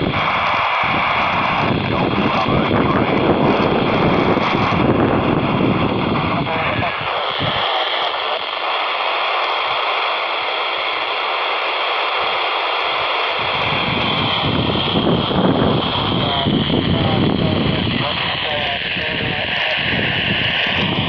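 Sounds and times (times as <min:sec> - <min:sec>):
low rumble: 0:00.0 - 0:08.4
radio static hiss: 0:00.0 - 0:21.0.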